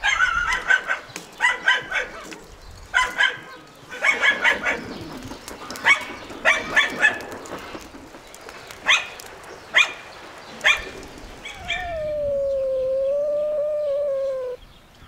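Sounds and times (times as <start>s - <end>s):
dog barking: 0.0s - 4.9s, 5.8s - 7.2s, 8.8s - 9.2s, 9.8s - 10.0s, 10.6s - 10.9s.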